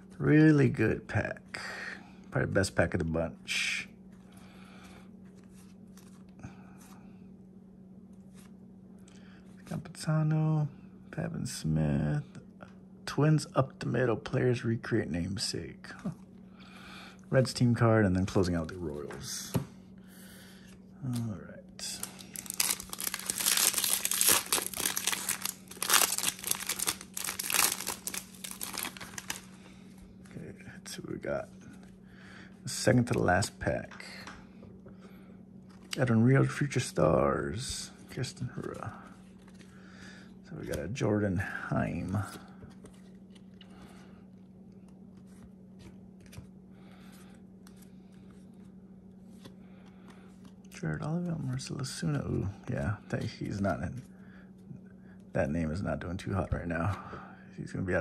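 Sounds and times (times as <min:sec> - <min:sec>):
steady low hum: 0:00.0 - 0:58.0
trading cards rustling: 0:20.4 - 0:30.4, 0:37.6 - 0:41.0
plastic wrapper crinkling: 0:21.8 - 0:29.6
wrapper being torn open: 0:22.0 - 0:29.5.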